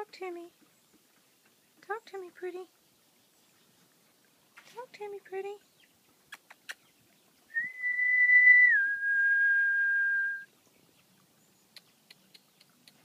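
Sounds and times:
person whistling two notes: 7.5 - 10.4
faint ticks: 11.7 - 13.0.

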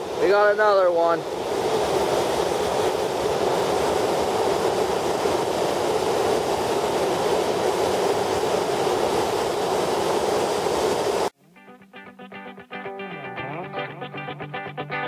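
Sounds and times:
river water rushing over weir: 0.0 - 11.3
quiet guitar: 11.4 - 15.0.

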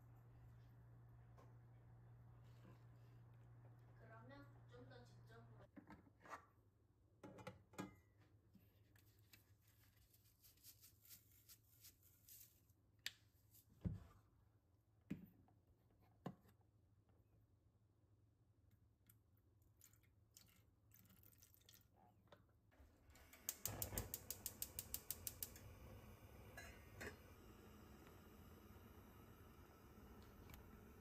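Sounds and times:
water pouring into saucepan: 19.7 - 22.0
gas burner hissing: 23.2 - 31.0
gas igniter clicking: 23.4 - 25.7.

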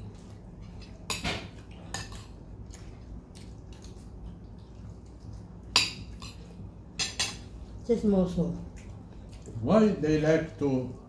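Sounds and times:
cutlery clinking on a plate: 1.1 - 2.4, 5.8 - 7.5.

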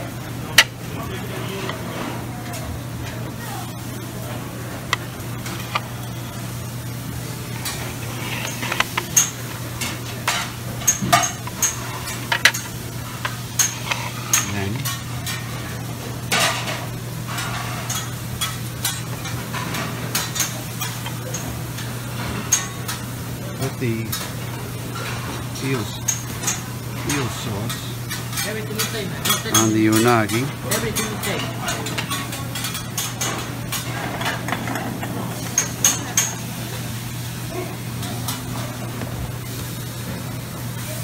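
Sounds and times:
steady low hum: 0.0 - 28.3
dishes and cutlery clinking: 7.6 - 15.5, 24.9 - 36.5.

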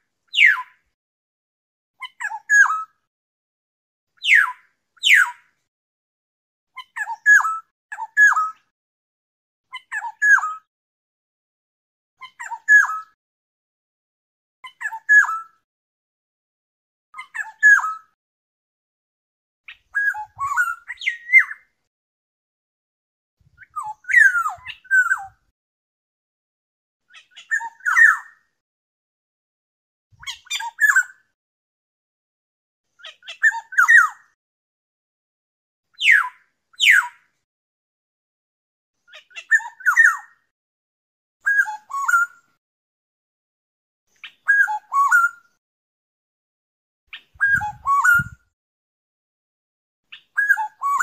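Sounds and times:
bird whistling song: 0.3 - 0.7, 2.0 - 2.9, 4.2 - 5.4, 6.8 - 8.7, 9.7 - 10.7, 12.2 - 13.2, 14.6 - 15.5, 17.2 - 18.2, 19.7 - 21.7, 23.5 - 25.4, 27.1 - 28.4, 30.2 - 31.2, 33.0 - 34.3, 35.9 - 37.2, 39.1 - 40.4, 41.4 - 42.5, 44.2 - 45.6, 47.1 - 48.4, 50.1 - 51.0
bird whistling call: 20.0 - 21.6, 23.6 - 25.2, 36.0 - 37.1, 41.5 - 42.3, 44.2 - 45.4, 47.1 - 48.4, 50.4 - 51.0.

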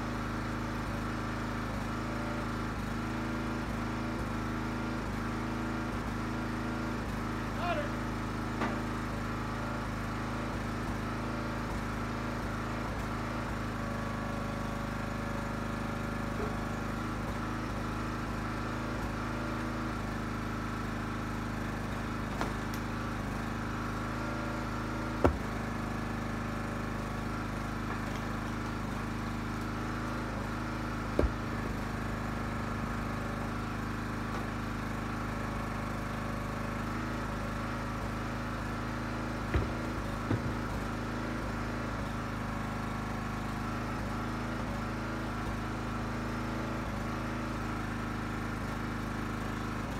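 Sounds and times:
small gas engine running: 0.0 - 49.9
sharp knocks: 31.2 - 31.5, 39.5 - 40.8.

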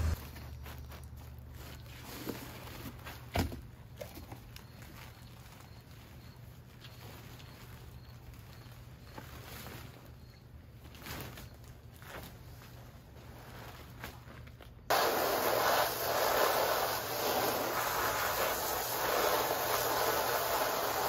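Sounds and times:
steady low hum: 0.0 - 1.4.

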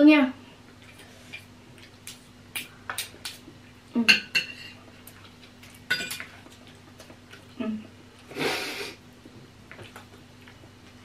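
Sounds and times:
faint steady hum: 0.0 - 11.0
cutlery clinking on a plate: 4.1 - 4.8, 5.9 - 6.3.

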